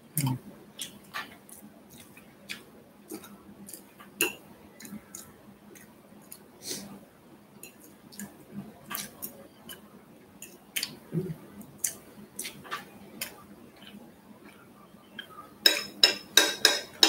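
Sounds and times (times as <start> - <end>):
chewing: 0.2 - 6.5, 11.8 - 15.4
fork clinking on glass plate: 15.7 - 17.0.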